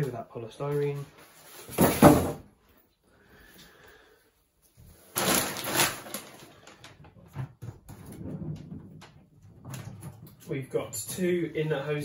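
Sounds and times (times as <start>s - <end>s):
packaging rustling scrape: 5.0s - 6.8s.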